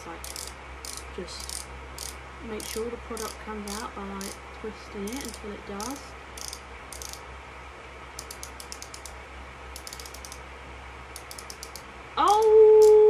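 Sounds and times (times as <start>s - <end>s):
small plastic clicks: 0.2s - 4.4s, 5.1s - 7.2s, 8.2s - 9.2s, 9.8s - 10.4s, 11.2s - 13.0s.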